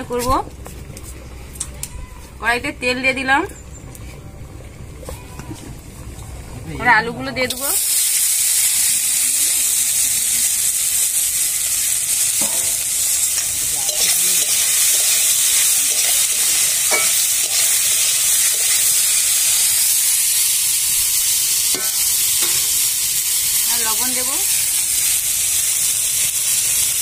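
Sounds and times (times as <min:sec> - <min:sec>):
potatoes sizzling in oil: 0:06.8 - 0:27.0
metal spatula scraping pan: 0:13.4 - 0:19.2.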